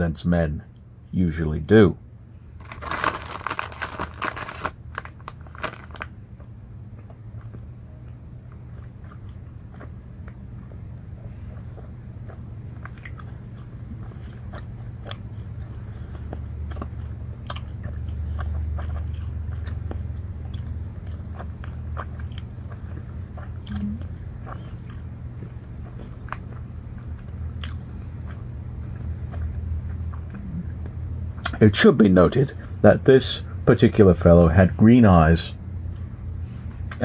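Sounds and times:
steady low hum: 0:00.0 - 0:37.0
person chewing crunchy snack: 0:02.6 - 0:06.1, 0:08.6 - 0:31.6.

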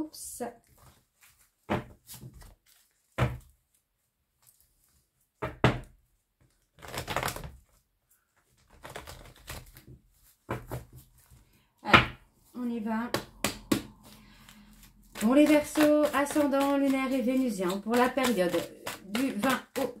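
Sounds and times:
cards shuffled by hand: 0:06.5 - 0:07.8, 0:08.4 - 0:11.4, 0:14.0 - 0:20.0.

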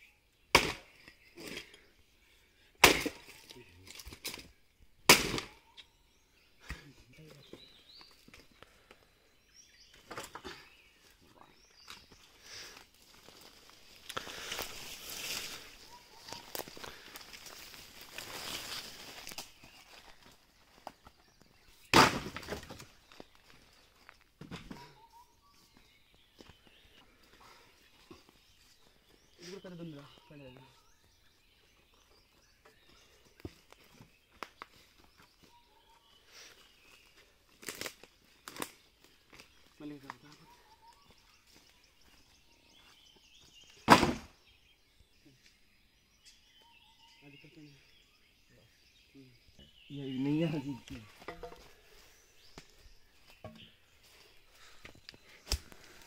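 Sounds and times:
rustle and crunch of dry leaves: 0:11.9 - 0:21.3, 0:35.6 - 0:43.7
footsteps in dry leaves: 0:13.0 - 0:20.7
wooden planks knocking together: 0:51.2 - 0:51.7.

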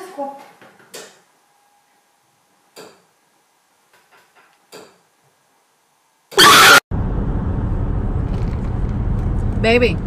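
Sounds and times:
low rumble inside a car: 0:07.0 - 0:10.0.

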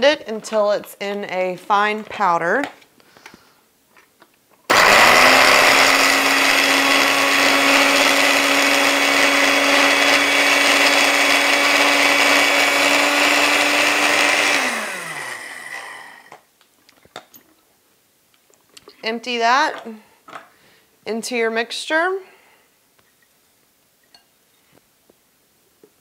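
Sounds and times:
blender grinding: 0:04.7 - 0:16.4.

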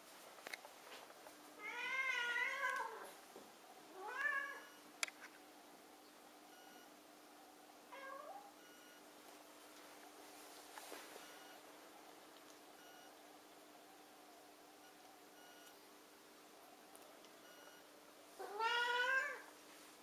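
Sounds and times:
cat meowing: 0:01.6 - 0:03.1, 0:04.0 - 0:04.7, 0:18.4 - 0:19.5.

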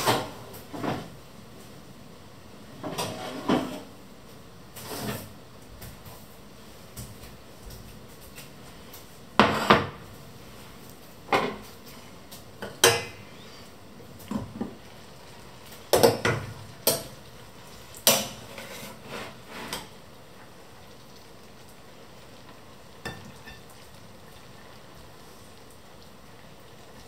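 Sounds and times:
pots and plates clinking: 0:23.0 - 0:23.8.

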